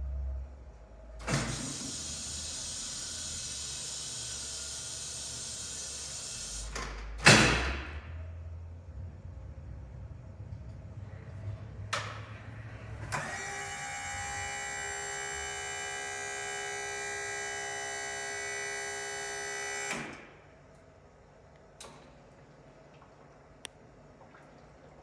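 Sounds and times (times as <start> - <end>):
hydraulic pump motor whining: 12.9 - 20.4.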